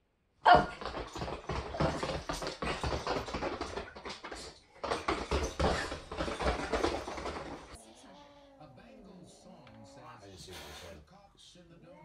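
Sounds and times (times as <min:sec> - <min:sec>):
dog's booted feet tapping on floor: 0:00.5 - 0:07.8.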